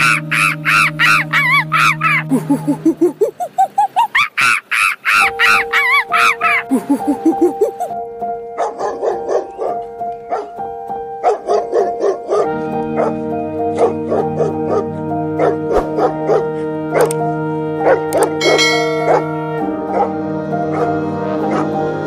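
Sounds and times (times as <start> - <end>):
background music with sustained notes: 0.0 - 3.6, 5.0 - 22.0
dog barking: 8.6 - 10.6, 11.2 - 13.2, 13.8 - 17.1, 17.8 - 21.8
deep drone: 12.5 - 22.0.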